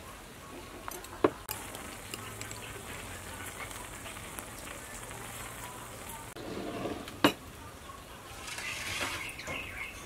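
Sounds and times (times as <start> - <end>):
soup bubbling in a pot: 1.5 - 7.2.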